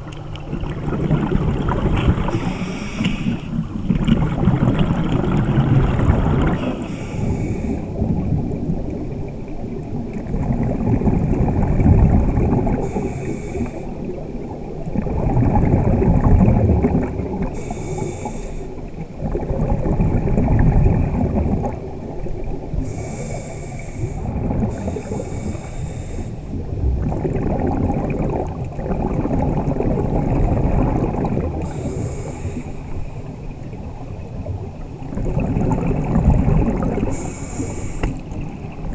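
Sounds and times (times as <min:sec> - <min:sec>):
diver inhaling through regulator: 0:02.2 - 0:03.6, 0:06.5 - 0:08.0, 0:12.8 - 0:14.0, 0:17.5 - 0:18.8, 0:22.8 - 0:26.5, 0:31.6 - 0:33.0, 0:37.0 - 0:38.3
bubbling exhalation: 0:26.8 - 0:31.9.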